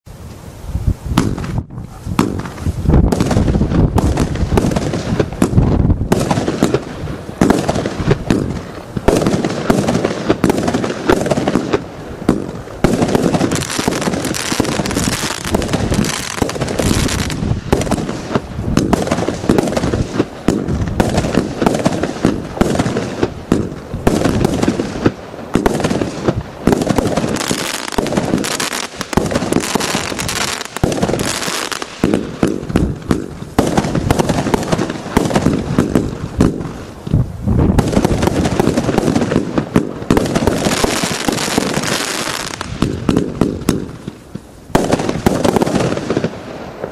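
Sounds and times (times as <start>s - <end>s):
fireworks launching and bursting: 0.0s - 46.9s.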